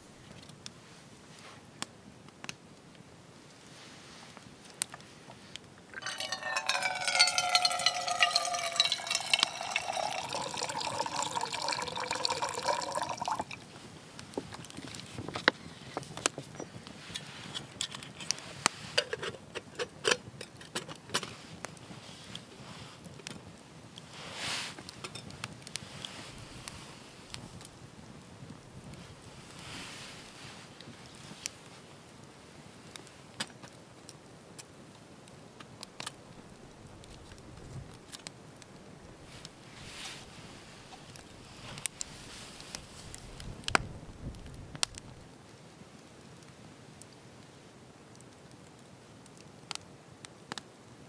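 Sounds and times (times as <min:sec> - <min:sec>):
campfire crackling and popping: 0:01.7 - 0:03.7, 0:04.3 - 0:51.0
water pouring into metal mug: 0:06.0 - 0:13.6.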